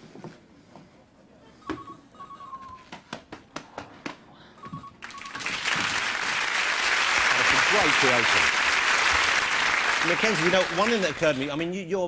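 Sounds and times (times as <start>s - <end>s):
audience applause: 5.0s - 11.6s.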